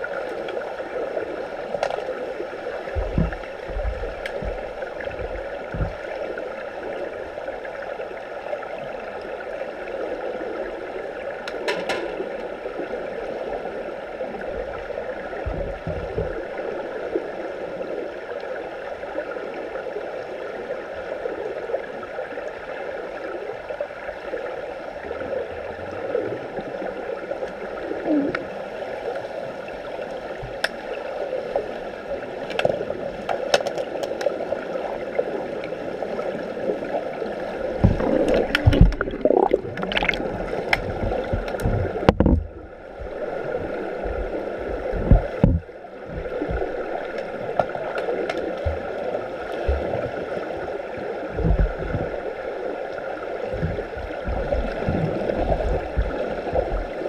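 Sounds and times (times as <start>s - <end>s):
muffled underwater gurgling: 0.0s - 7.7s, 12.2s - 17.9s, 27.6s - 29.1s, 35.4s - 57.0s
heavy low thumps: 3.0s - 6.0s.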